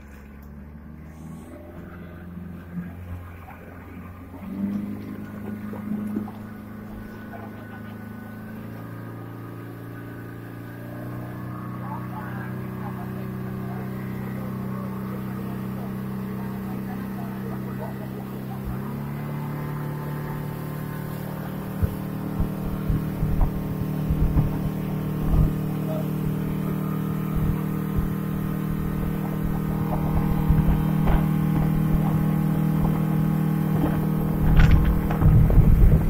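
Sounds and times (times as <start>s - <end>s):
rushing water: 0.0s - 1.0s, 1.7s - 36.0s
motorboat engine droning: 0.0s - 36.0s
wind buffeting microphone: 21.5s - 36.0s.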